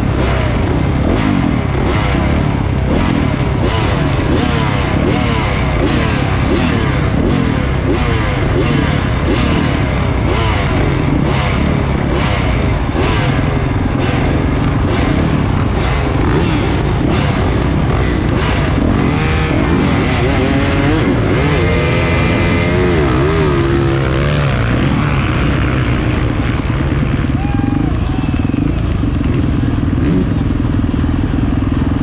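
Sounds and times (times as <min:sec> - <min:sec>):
motocross bike engine revving: 0:00.0 - 0:32.0.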